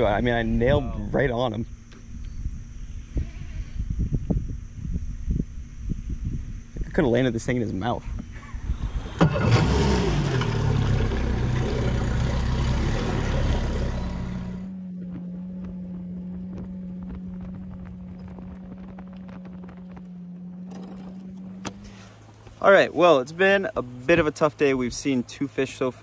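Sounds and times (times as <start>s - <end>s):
boat motor running at speed: 8.1s - 22.6s
quiet steady motor hum: 10.9s - 26.0s.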